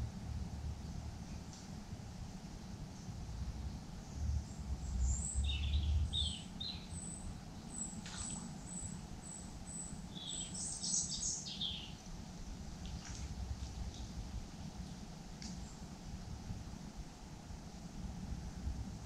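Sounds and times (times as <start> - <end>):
small birds calling: 3.9 - 12.1
bird chirps: 4.9 - 12.0.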